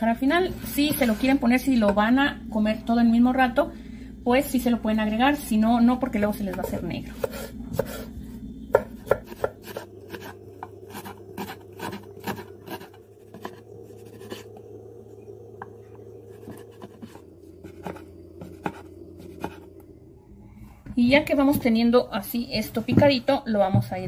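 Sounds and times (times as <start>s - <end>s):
knife chopping on wooden board: 6.5s - 8.0s, 8.7s - 13.6s, 16.4s - 19.6s.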